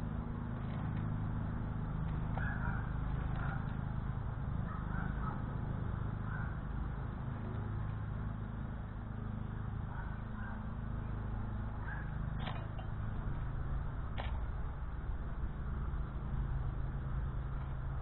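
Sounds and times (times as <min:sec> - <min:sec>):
low outdoor rumble: 0:00.0 - 0:18.0
sharp click: 0:14.2 - 0:14.4.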